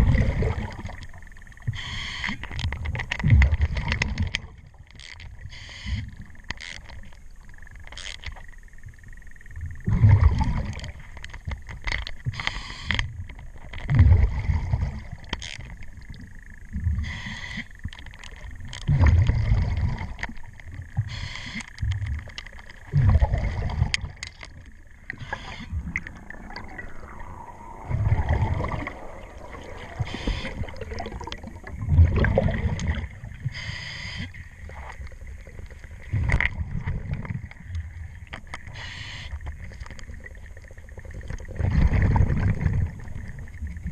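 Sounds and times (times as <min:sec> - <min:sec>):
exhaust bubbles burbling: 0:00.0 - 0:01.2, 0:09.8 - 0:11.0, 0:13.9 - 0:15.3, 0:18.8 - 0:20.2, 0:22.9 - 0:33.6, 0:39.8 - 0:43.9
regulator hiss on inhalation: 0:01.7 - 0:02.3, 0:12.4 - 0:13.0, 0:17.0 - 0:17.7, 0:21.1 - 0:21.7, 0:33.5 - 0:34.4, 0:38.7 - 0:39.4.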